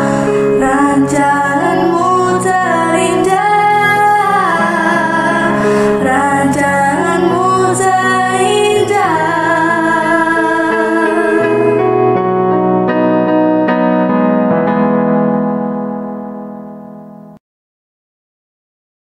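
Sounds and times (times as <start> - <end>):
electronic keyboard chords: 0.0 - 17.4
girl singing: 0.5 - 11.8.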